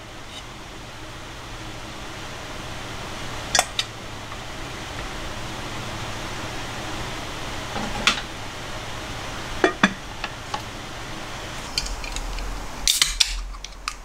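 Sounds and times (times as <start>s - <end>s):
drink can opening hiss: 11.6s - 14.0s.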